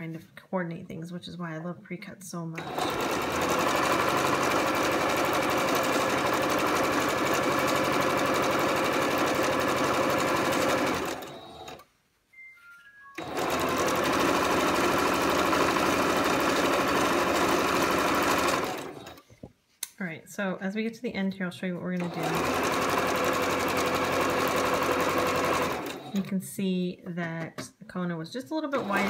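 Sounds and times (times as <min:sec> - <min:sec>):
electric sewing machine stitching: 0:02.6 - 0:11.9, 0:13.2 - 0:19.3, 0:22.0 - 0:26.4, 0:28.6 - 0:29.0.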